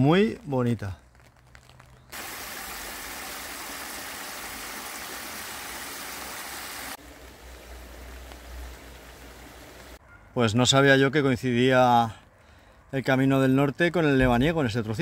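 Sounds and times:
water rushing in stream: 2.1 - 10.0.

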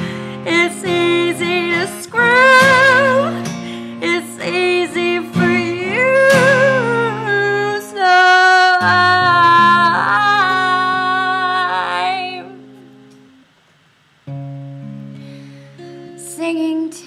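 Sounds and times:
acoustic guitar: 0.0 - 17.0
woman singing wavering notes: 4.0 - 12.7.

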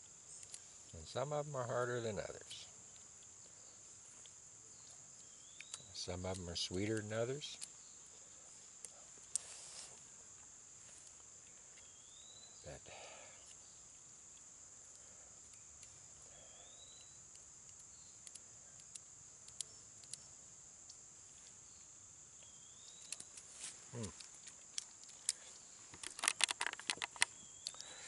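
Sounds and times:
insects droning: 0.0 - 28.0
fingers picking at nut shells: 4.8 - 7.8, 16.8 - 20.3, 23.0 - 28.0.

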